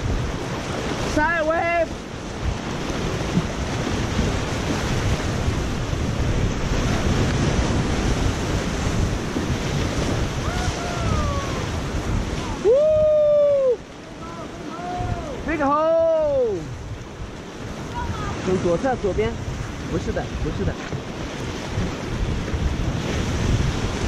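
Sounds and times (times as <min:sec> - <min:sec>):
river rapids rushing: 0:00.0 - 0:24.0
wind noise on microphone: 0:00.0 - 0:24.0
person shouting: 0:10.4 - 0:11.8, 0:12.4 - 0:16.6.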